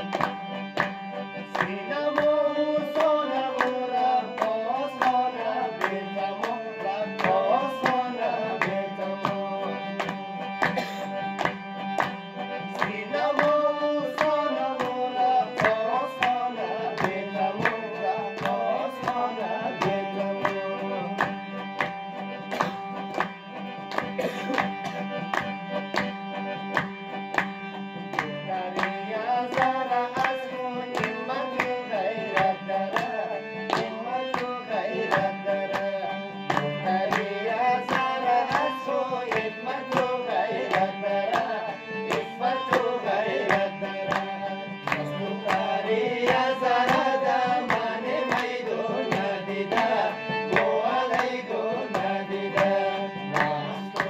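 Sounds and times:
sustained accompaniment: 0.0s - 54.0s
man singing: 1.4s - 10.1s, 12.7s - 21.3s, 28.2s - 54.0s.

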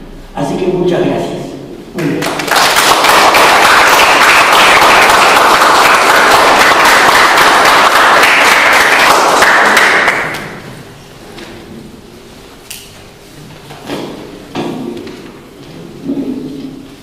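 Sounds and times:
audience applauding: 2.0s - 10.7s.

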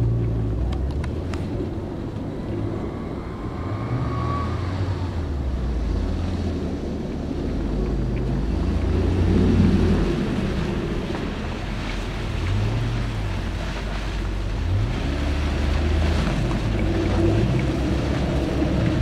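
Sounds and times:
car engine revving: 0.0s - 13.5s.

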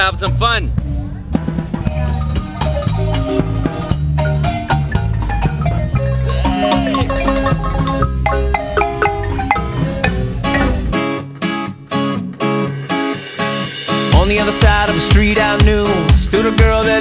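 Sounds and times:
low bass line: 0.0s - 11.0s
marimbas struck with mallets: 4.2s - 11.0s
drum kit and cymbal: 12.5s - 17.0s.

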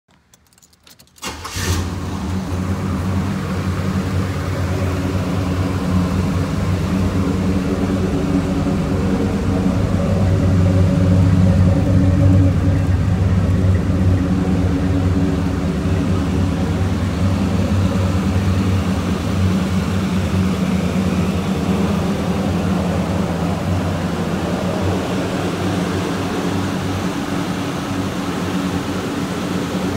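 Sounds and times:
car engine starting and idling: 0.1s - 29.9s.

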